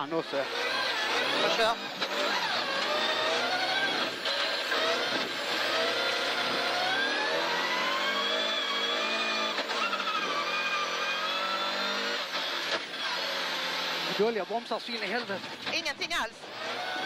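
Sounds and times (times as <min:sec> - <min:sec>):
rally car engine revving: 0:00.0 - 0:17.0.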